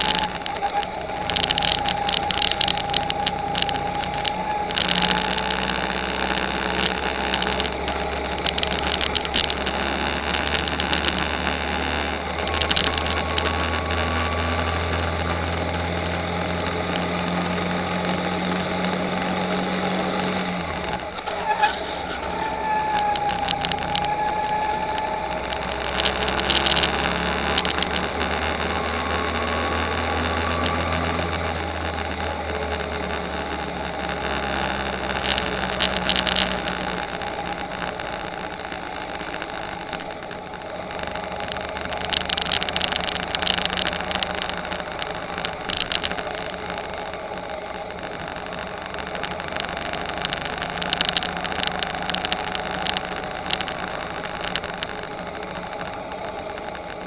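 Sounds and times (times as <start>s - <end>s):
rattling clicks: 0.0s - 9.7s
go-kart engine running: 0.0s - 57.0s.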